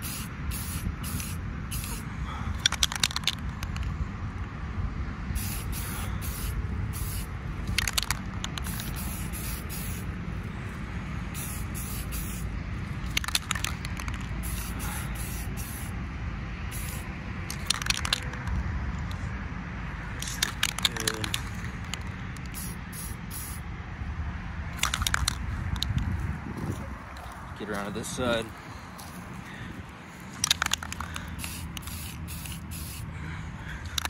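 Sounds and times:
spray paint can hissing: 0:00.0 - 0:02.0, 0:02.6 - 0:03.9, 0:05.4 - 0:10.1, 0:11.3 - 0:16.0, 0:16.7 - 0:18.5, 0:20.2 - 0:23.6, 0:24.8 - 0:25.9, 0:30.4 - 0:33.0.

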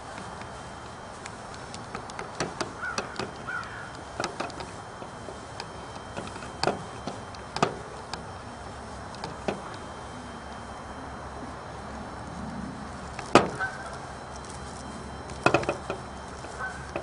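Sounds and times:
hands tapping wires and plastic: 0:13.2 - 0:17.0.

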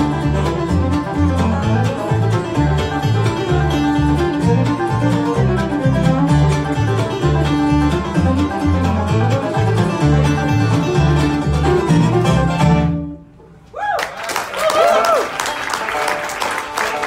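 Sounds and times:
bluegrass band playing: 0:00.0 - 0:13.7, 0:15.3 - 0:17.0.

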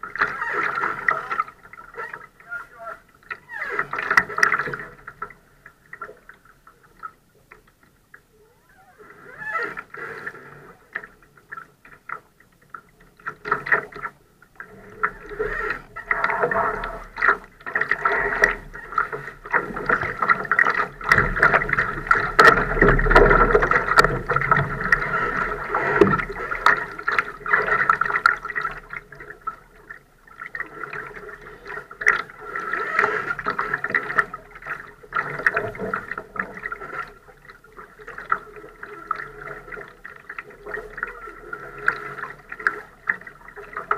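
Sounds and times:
water sloshing against hull: 0:00.0 - 0:43.9
boat clicks and knocks: 0:15.5 - 0:25.0.

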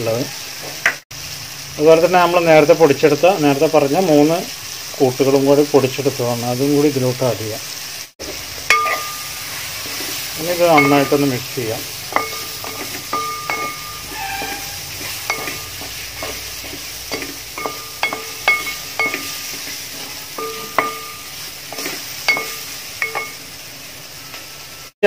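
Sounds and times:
faint steady sizzle: 0:00.0 - 0:25.0
wooden spatula scraping metal pot: 0:12.1 - 0:23.3.

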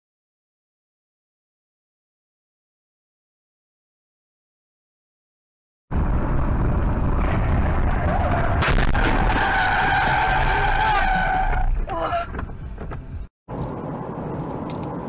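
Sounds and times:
car tyre and road noise: 0:05.9 - 0:15.0
high tyre squeal: 0:07.8 - 0:12.5.

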